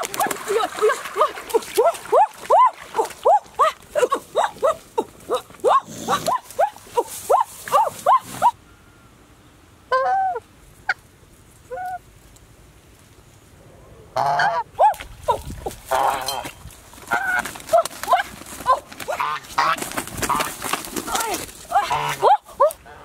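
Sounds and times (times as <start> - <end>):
geese honking: 14.2 - 14.7, 15.9 - 16.4, 19.1 - 20.5, 21.8 - 22.3.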